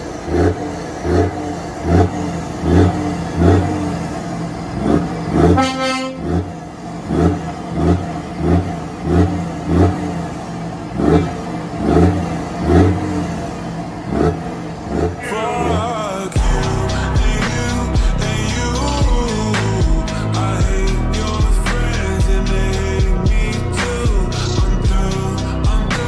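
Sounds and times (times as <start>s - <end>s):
diesel truck engine revving: 0.0s - 26.0s
truck horn: 4.8s - 10.0s.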